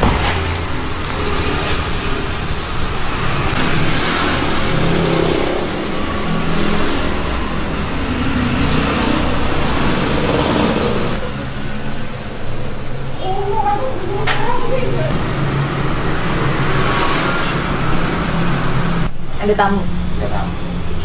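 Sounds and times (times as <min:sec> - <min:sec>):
vehicle engine running: 0:00.4 - 0:16.7.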